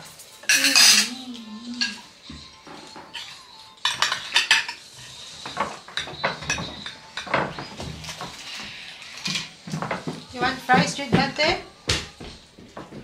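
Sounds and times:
utensil clinking on dishes: 0.1s - 8.3s.

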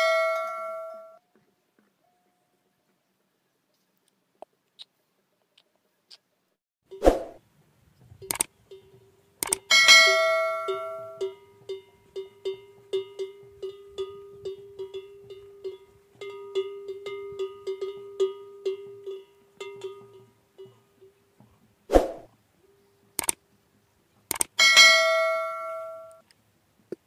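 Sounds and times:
camel bell clanking: 0.0s - 1.2s, 8.7s - 21.2s, 24.6s - 26.2s.

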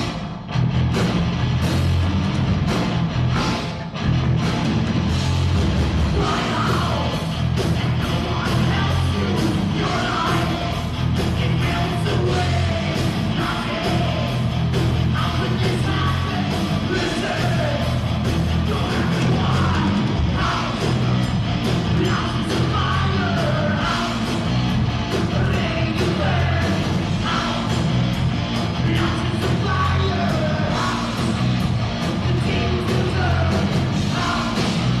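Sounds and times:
drums: 0.0s - 35.0s
electric guitars: 0.0s - 35.0s
singer yelling into microphone: 6.1s - 7.2s.

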